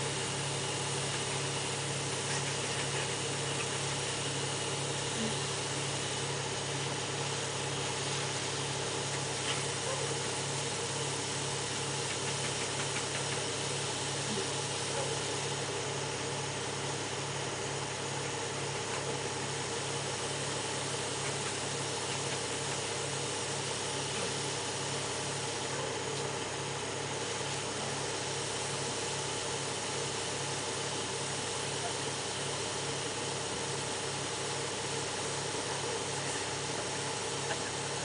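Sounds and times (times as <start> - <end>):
machinery humming: 0.0 - 38.0.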